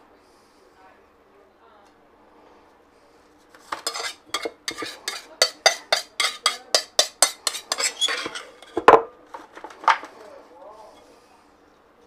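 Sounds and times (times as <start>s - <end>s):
knife scraping glass bowl: 3.6s - 8.9s.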